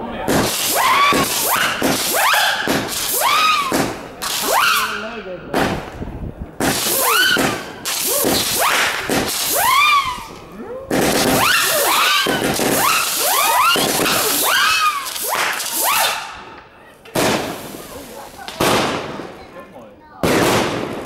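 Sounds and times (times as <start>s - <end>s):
fireworks whistling: 0.3s - 6.0s, 6.6s - 19.5s
hiss of spraying sparks: 6.7s - 9.8s.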